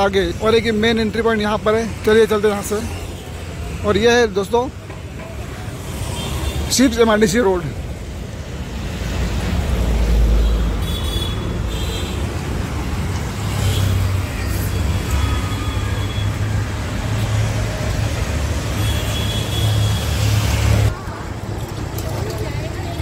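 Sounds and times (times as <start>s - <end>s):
cars and trucks passing: 0.0s - 23.0s
low rumble of engines and tyres: 0.0s - 23.0s
motorbikes passing: 0.0s - 23.0s.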